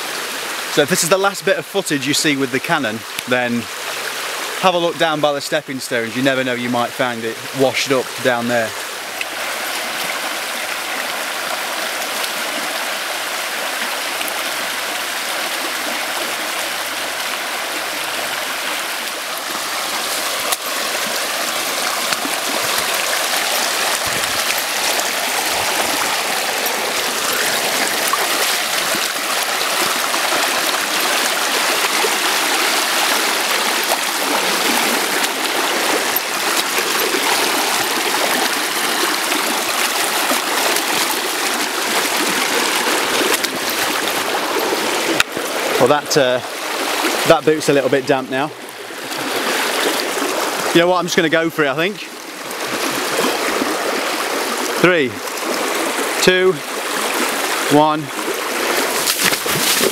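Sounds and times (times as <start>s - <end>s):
river rushing over rocks: 0.0s - 59.9s.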